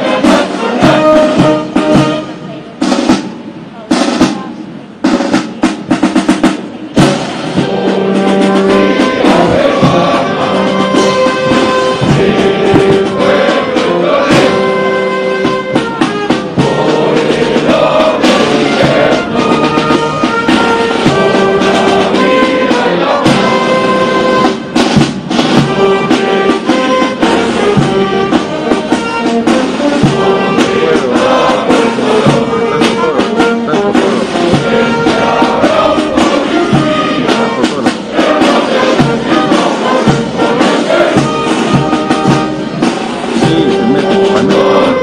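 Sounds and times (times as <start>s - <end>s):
brass band with drums: 0.0s - 45.0s.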